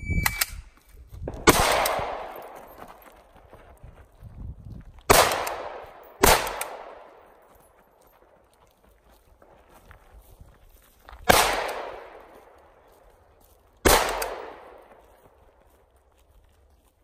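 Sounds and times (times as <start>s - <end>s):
rifle shots echoing: 1.3s - 2.6s, 5.1s - 7.3s, 11.3s - 12.6s, 13.8s - 15.0s.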